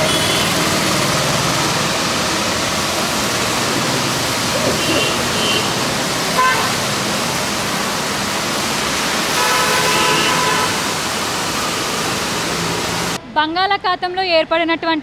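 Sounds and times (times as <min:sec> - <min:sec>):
car horn: 0:00.0 - 0:00.6, 0:04.8 - 0:05.8, 0:06.4 - 0:06.8, 0:09.3 - 0:10.9
tyres hissing through water: 0:00.0 - 0:13.2.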